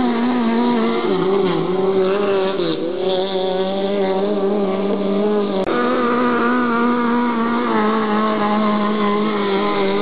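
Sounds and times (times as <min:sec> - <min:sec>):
powerboat engine at high revs: 0:00.0 - 0:10.0.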